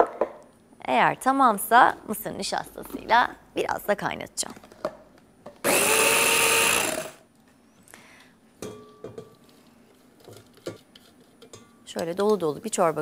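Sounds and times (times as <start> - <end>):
electric chopper whirring: 5.7 - 7.2.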